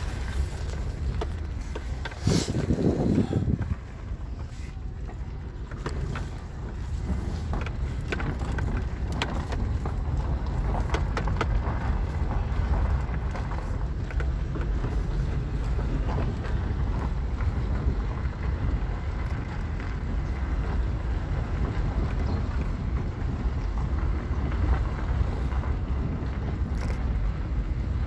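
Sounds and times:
engine and tyre rumble: 0:00.0 - 0:28.0.

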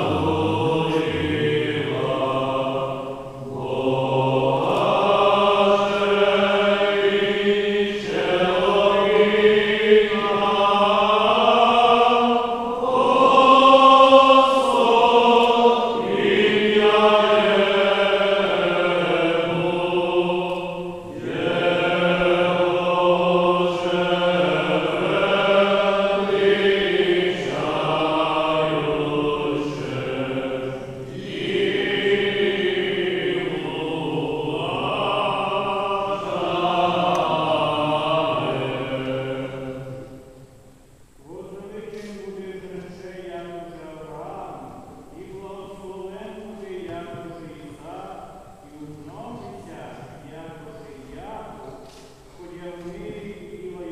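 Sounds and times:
voices chanting: 0:00.0 - 0:40.4.

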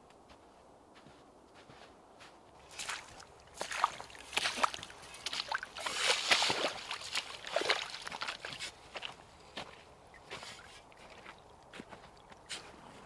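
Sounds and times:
boots splashing through stream: 0:02.6 - 0:13.0.

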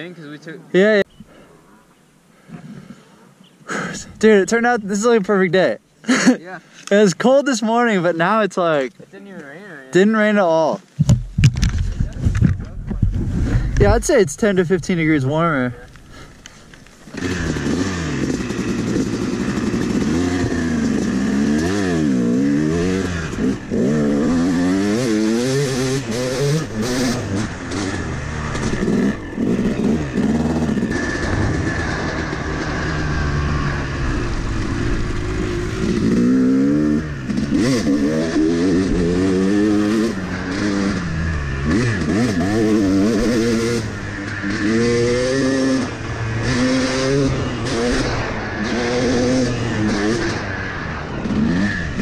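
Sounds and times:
dirt bike engine revving: 0:13.5 - 0:52.0.

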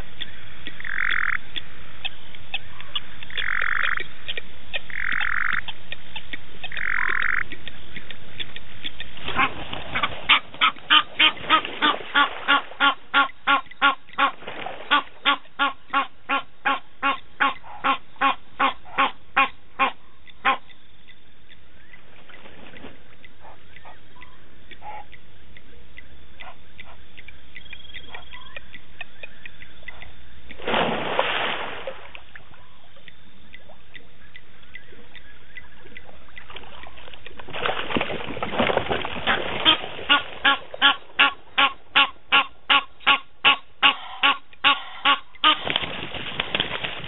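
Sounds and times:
animal calling: 0:23.4 - 0:25.2.

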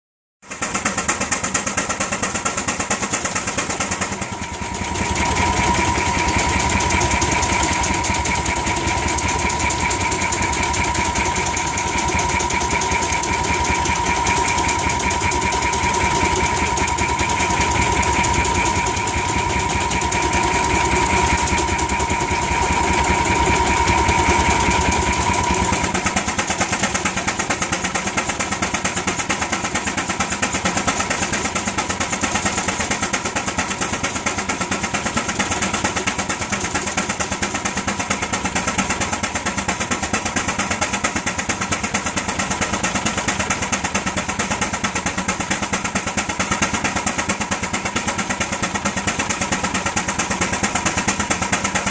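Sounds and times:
steam engine exhaust beat: 0:00.4 - 0:51.9
steady whine: 0:00.9 - 0:29.0.

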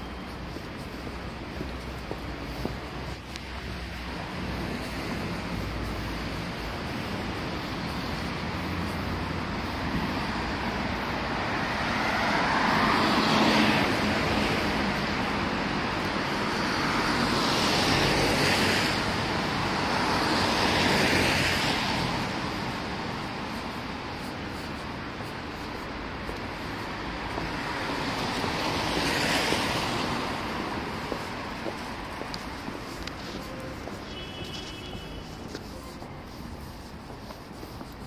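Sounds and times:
traffic background: 0:00.0 - 0:38.0
tyres hissing on wet road: 0:00.0 - 0:38.0.

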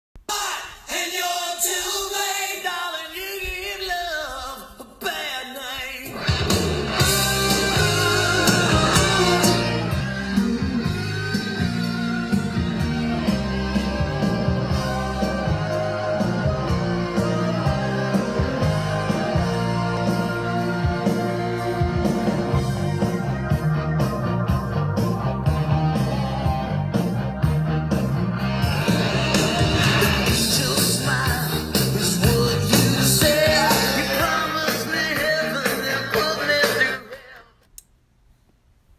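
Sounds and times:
rock music with guitar: 0:06.1 - 0:37.1.

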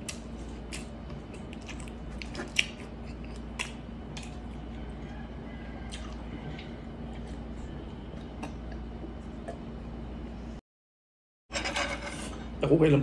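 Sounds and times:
person chewing food: 0:00.0 - 0:09.7
steady low hum: 0:00.0 - 0:10.6.

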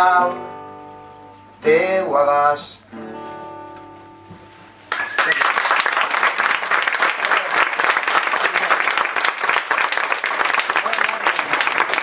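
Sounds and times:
audience applause: 0:04.9 - 0:12.0.

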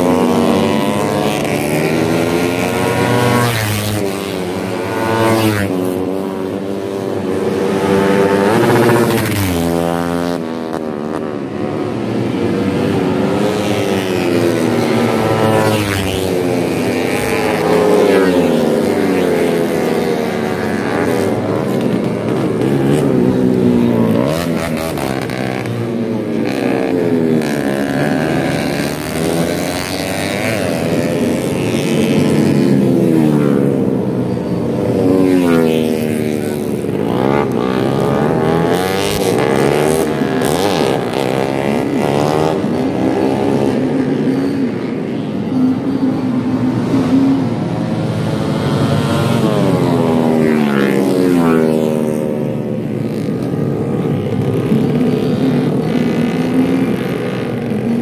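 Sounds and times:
racing motorcycles revving: 0:00.0 - 0:58.0.

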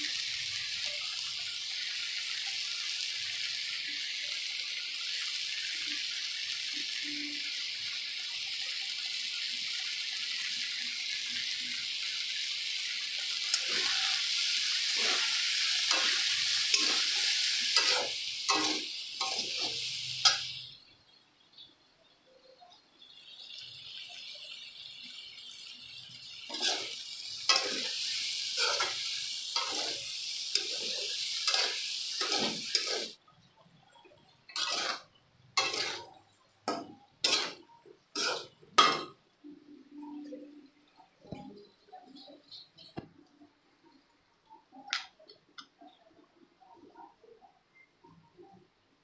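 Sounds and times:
vegetables sizzling in a pan: 0:00.0 - 0:46.0
metal spatula scraping a pan: 0:13.4 - 0:20.8, 0:26.5 - 0:33.2, 0:34.5 - 0:39.2.

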